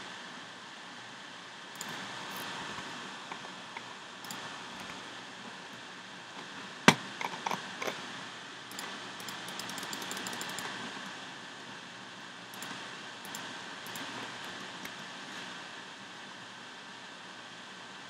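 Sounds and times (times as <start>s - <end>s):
steady hiss: 0.0s - 18.0s
mouse clicks: 8.7s - 10.7s.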